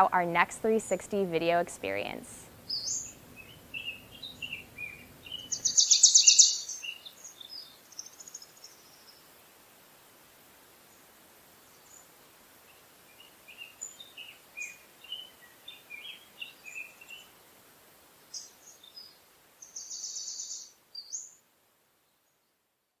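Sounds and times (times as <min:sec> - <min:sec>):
faint outdoor hiss: 0:00.0 - 0:23.0
small songbirds chirping: 0:00.7 - 0:09.7, 0:10.8 - 0:17.6, 0:18.2 - 0:22.7
bird trill: 0:02.7 - 0:09.1, 0:19.6 - 0:21.4.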